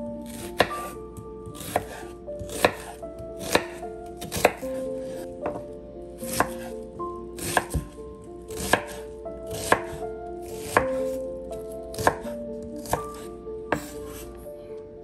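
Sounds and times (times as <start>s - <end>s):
knife chopping on wooden board: 0.3s - 5.6s, 6.3s - 6.7s, 7.4s - 11.2s, 11.9s - 14.2s.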